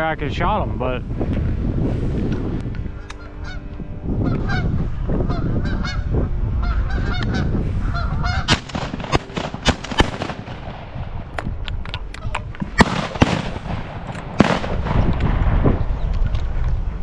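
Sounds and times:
geese honking: 2.9 - 10.6
shotgun blasts: 8.5 - 11.3, 12.6 - 15.6.

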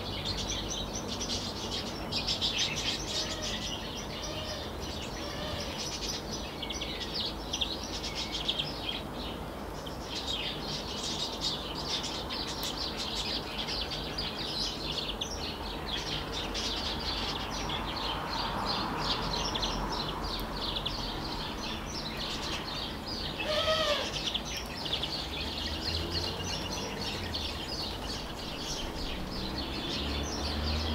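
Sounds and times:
songbirds chirping: 0.0 - 30.9
lower bird call falling: 23.4 - 24.2.

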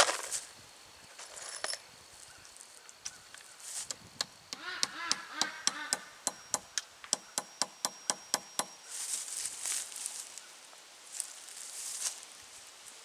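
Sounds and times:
dry leaves rustling underfoot: 0.0 - 3.9, 8.8 - 13.0.

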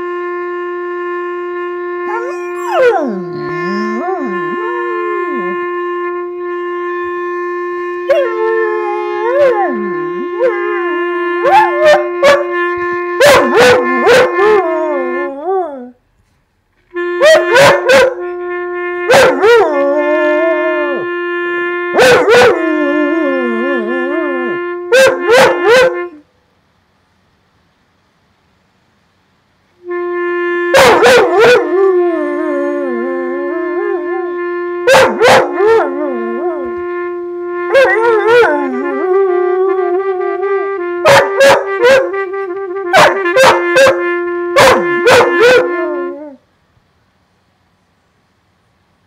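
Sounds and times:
clarinet long note: 0.0 - 16.0, 16.9 - 26.3, 29.8 - 46.4
dog yipping: 2.1 - 5.5, 25.0 - 26.0, 34.9 - 35.8, 41.1 - 42.0, 43.0 - 44.0, 44.6 - 45.7
dog howling: 2.1 - 5.6, 8.0 - 12.5, 13.2 - 16.0, 19.1 - 21.1, 21.9 - 26.2, 30.7 - 36.8, 37.7 - 40.0, 41.0 - 42.2, 43.0 - 44.0.

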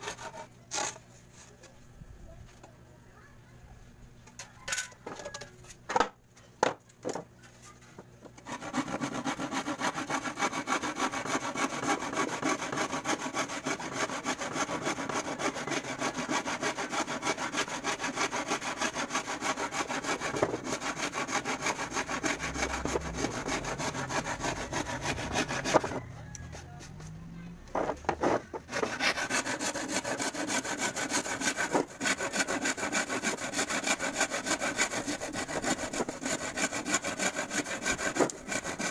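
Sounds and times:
hand saw cutting plywood: 0.0 - 1.0, 8.4 - 26.7, 27.7 - 38.9.

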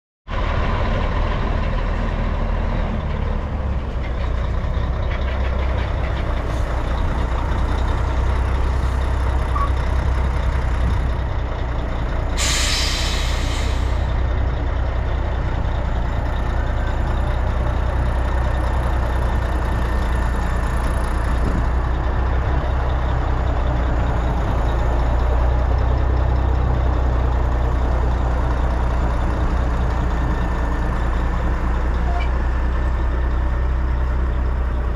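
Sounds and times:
diesel truck engine running: 0.3 - 34.9
air brake hiss: 12.4 - 14.1.

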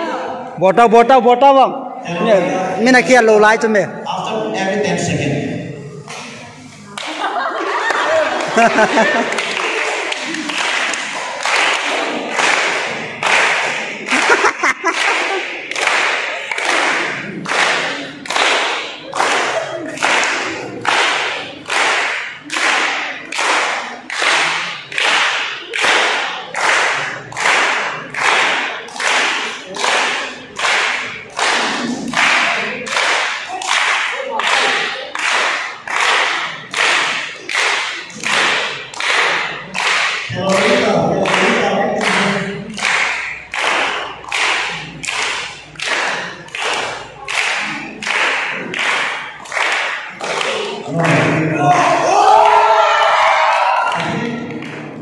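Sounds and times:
people clapping in unison: 6.0 - 55.0
group singing: 7.2 - 14.2, 28.8 - 35.2, 35.8 - 55.0.

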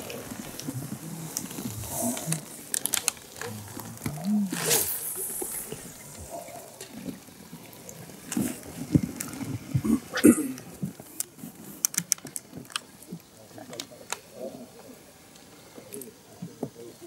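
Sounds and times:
short hiss: 4.4 - 6.7.

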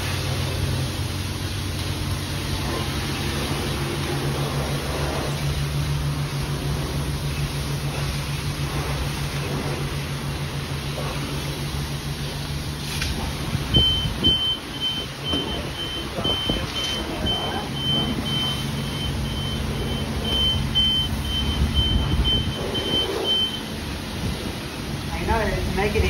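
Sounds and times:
high-pressure pump humming: 0.0 - 26.0
high electronic beep: 13.7 - 23.7.

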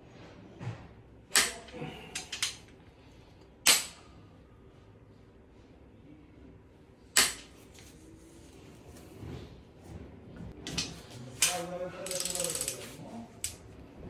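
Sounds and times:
rapid ratchet clicks: 12.0 - 12.8.

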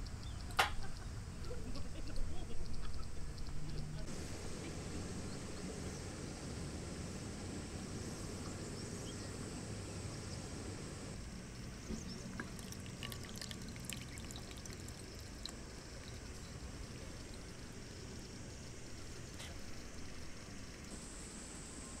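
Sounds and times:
water pouring and trickling: 11.6 - 20.2.

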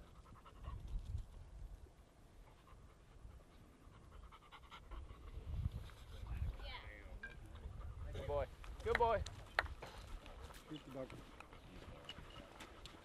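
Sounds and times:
dog panting: 2.4 - 6.6, 7.4 - 8.5, 9.8 - 13.0.

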